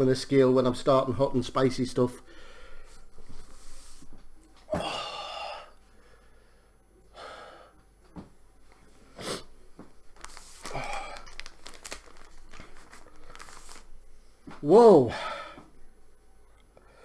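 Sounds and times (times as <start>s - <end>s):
man breathing out heavily: 2.2s - 3.0s, 4.7s - 7.8s, 10.6s - 11.3s, 15.1s - 15.7s
paper tissue rustling: 9.9s - 14.1s.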